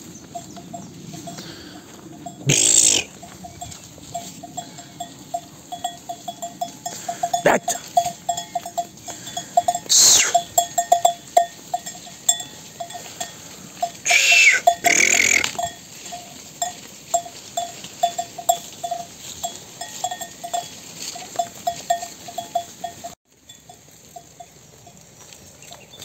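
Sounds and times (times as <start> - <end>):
sheep bells clinking: 0.0 - 26.0
sheep bleating: 2.4 - 3.4, 6.9 - 10.5, 14.0 - 15.7.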